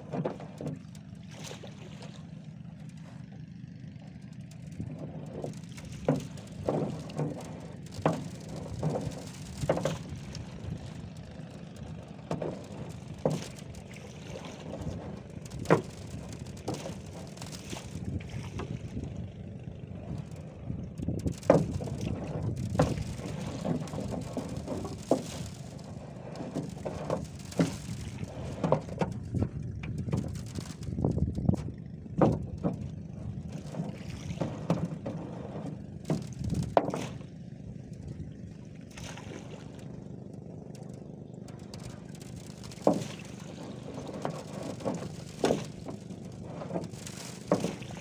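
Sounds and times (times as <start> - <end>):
knocks and rustling of net handling: 0.0 - 1.8, 2.8 - 37.3, 41.4 - 48.0
wind rumble: 4.8 - 38.6.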